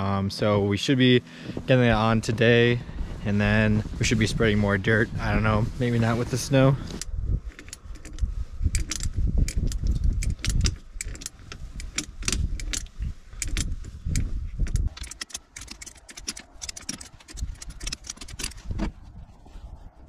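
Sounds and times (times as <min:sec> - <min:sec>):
low rumble: 0:00.0 - 0:15.0
wrench clicking on bolts: 0:06.9 - 0:18.7.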